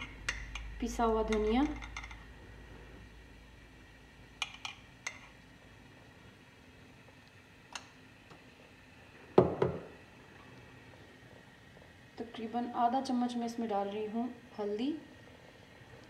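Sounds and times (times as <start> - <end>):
spoon knocking on metal pot: 9.4 - 9.9.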